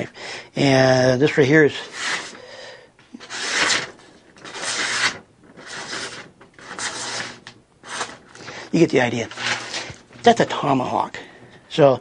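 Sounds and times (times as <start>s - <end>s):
blade slicing through paper: 1.8s - 2.4s, 3.2s - 8.5s, 9.3s - 10.0s.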